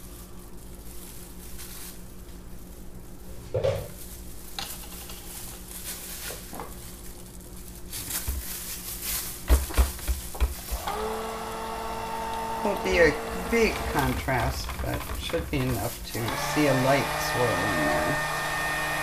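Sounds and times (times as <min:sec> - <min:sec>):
stick blender knocking plastic pitcher: 0:09.5 - 0:19.0
blender motor humming: 0:10.6 - 0:19.0.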